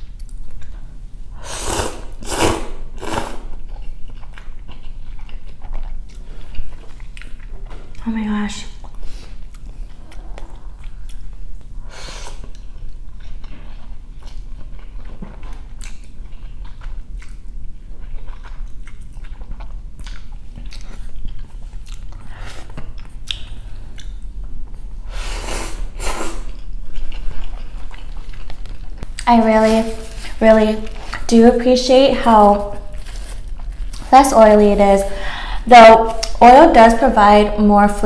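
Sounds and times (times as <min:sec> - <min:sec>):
slurping noodles: 0:01.4 - 0:03.6
wet chewing and mouth smacks: 0:03.5 - 0:08.0, 0:08.8 - 0:11.7, 0:12.4 - 0:24.8, 0:26.5 - 0:29.3.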